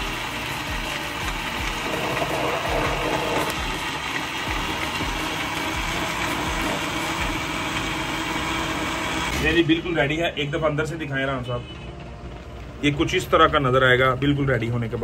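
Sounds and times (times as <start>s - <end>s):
blender churning ice: 0.0s - 10.1s.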